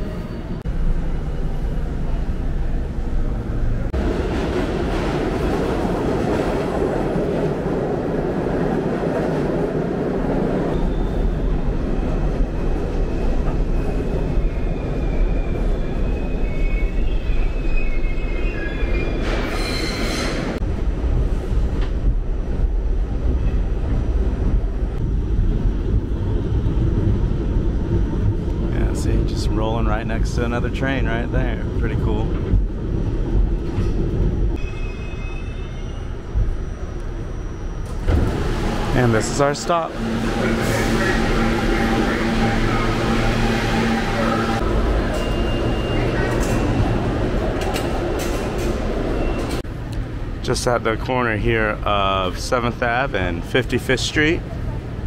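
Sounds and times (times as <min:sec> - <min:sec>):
subway train rumbling: 0:00.0 - 0:55.0
high wheel squeal: 0:13.0 - 0:20.6, 0:34.6 - 0:38.0.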